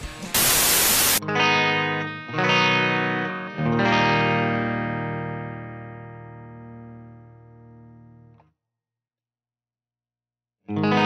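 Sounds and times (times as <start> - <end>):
electric guitar strumming chords: 0.0 - 8.4, 10.7 - 11.0
short burst of hiss: 0.4 - 1.2.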